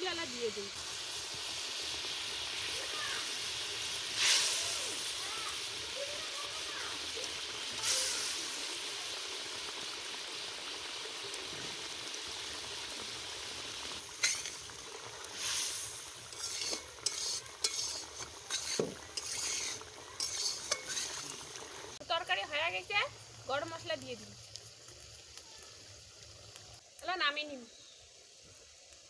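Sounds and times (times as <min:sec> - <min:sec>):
curry simmering in wok: 0:00.0 - 0:26.9
metal spatula scraping pan: 0:14.2 - 0:14.6, 0:16.2 - 0:21.4.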